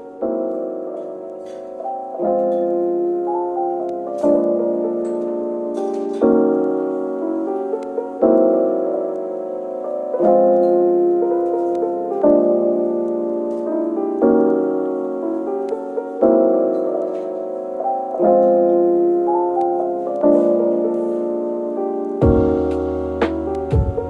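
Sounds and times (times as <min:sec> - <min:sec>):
soft piano chords: 0:00.0 - 0:24.0.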